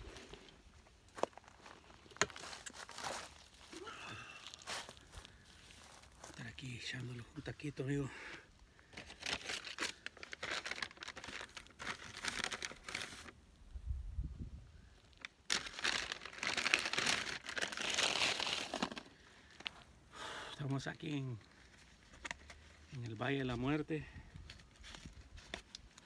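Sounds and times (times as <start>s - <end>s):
paper bag rustling: 9.0s - 13.3s, 15.5s - 19.2s.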